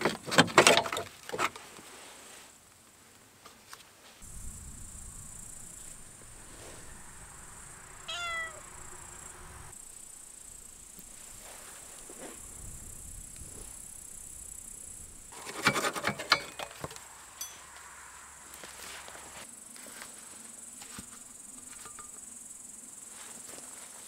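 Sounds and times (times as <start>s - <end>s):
cat meowing: 8.0s - 8.9s
metallic clanks and knocks: 15.4s - 17.6s, 21.8s - 22.2s.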